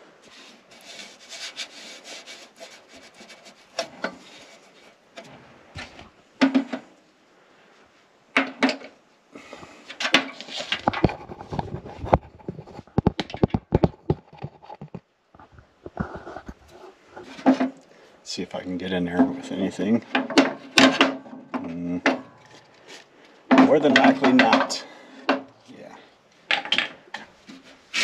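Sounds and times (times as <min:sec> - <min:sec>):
hand rubbing sheet metal: 0:00.0 - 0:05.0.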